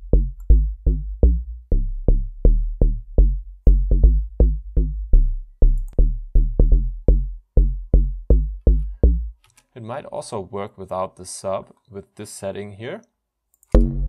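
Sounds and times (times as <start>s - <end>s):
plucky synth bass line: 0.0s - 9.4s, 13.7s - 14.0s.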